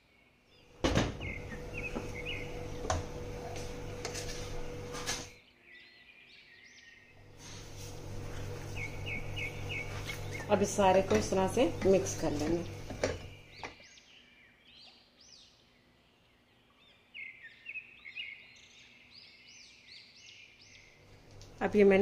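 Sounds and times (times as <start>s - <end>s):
birds chirping: 0.0s - 22.0s
electric chopper motor grinding: 7.2s - 13.6s.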